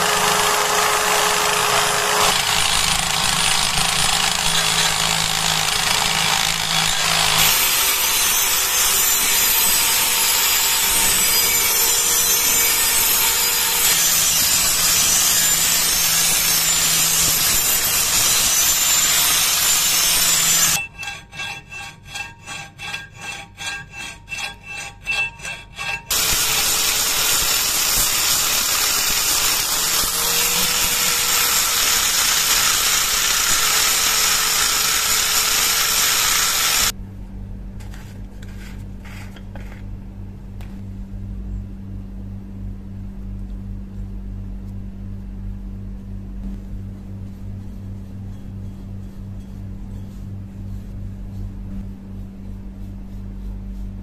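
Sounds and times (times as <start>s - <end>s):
angle grinder grinding steel: 0.0s - 37.0s
low steady hum: 36.9s - 54.0s.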